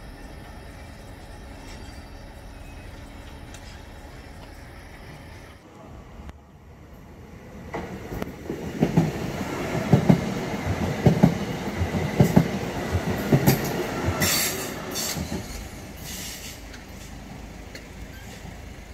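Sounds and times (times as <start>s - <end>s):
train wheels thumping over rail joints: 7.7s - 16.1s.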